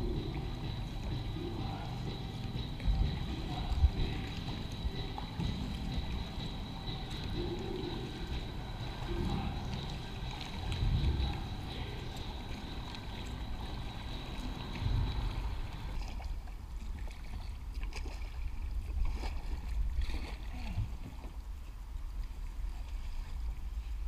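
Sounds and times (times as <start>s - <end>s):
steady low rumble: 0.0s - 17.8s
paddle strokes: 0.0s - 24.0s
water lapping and splashing: 0.0s - 24.0s.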